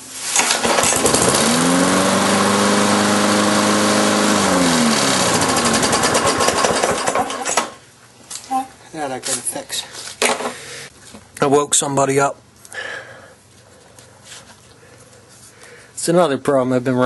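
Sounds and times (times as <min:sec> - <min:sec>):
lawn mower engine running: 0:00.4 - 0:07.6.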